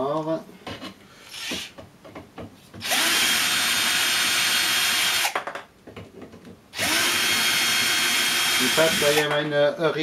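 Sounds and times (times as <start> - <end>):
electric screwdriver running: 2.8 - 5.4, 6.8 - 9.4.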